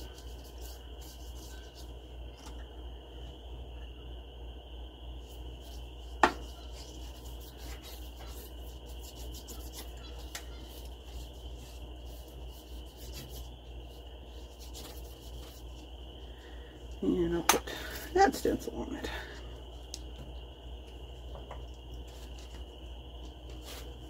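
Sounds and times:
hand rubbing wet paper: 0:00.0 - 0:02.0, 0:05.4 - 0:16.4
steady low hum: 0:00.0 - 0:24.0
thin high whine: 0:00.0 - 0:24.0.

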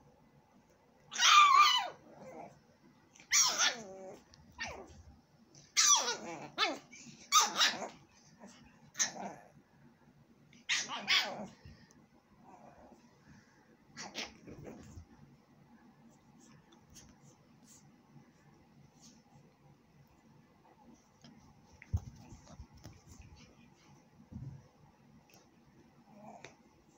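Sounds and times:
small dog barking: 0:03.3 - 0:04.0, 0:05.7 - 0:08.0, 0:10.6 - 0:11.5.

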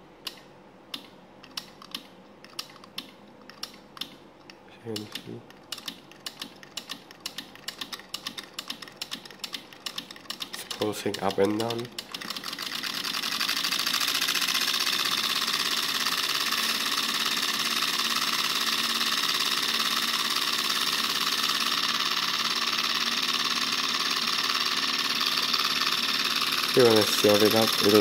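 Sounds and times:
motor buzzing chatter: 0:10.6 - 0:28.0.

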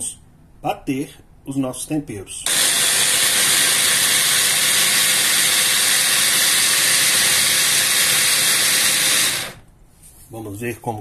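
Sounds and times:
food processor motor running: 0:02.5 - 0:09.6.

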